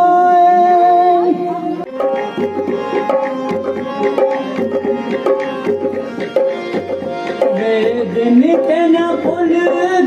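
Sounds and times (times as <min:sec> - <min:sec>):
harmonium chords: 0:00.0 - 0:10.0.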